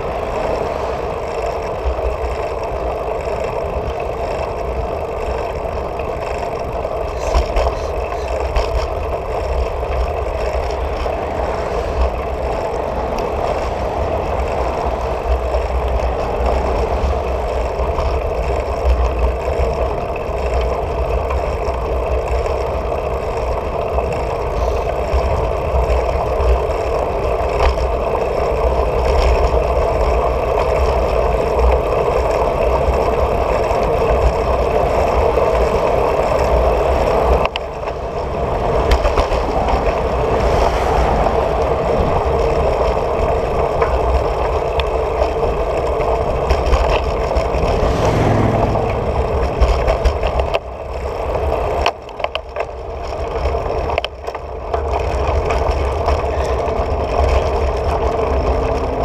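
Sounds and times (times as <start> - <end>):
bicycle tyres on asphalt: 0.0 - 59.0
cars passing: 0.0 - 59.0
wind on microphone: 46.3 - 50.7.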